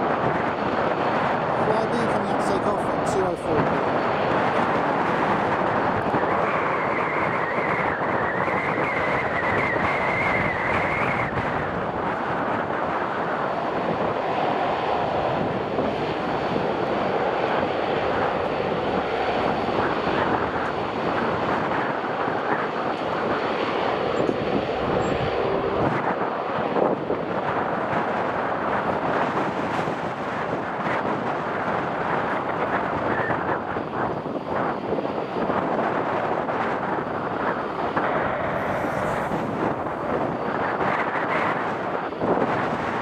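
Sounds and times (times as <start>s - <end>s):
turboprop engines running: 0.0s - 43.0s
high whine: 5.7s - 28.4s, 36.3s - 42.1s.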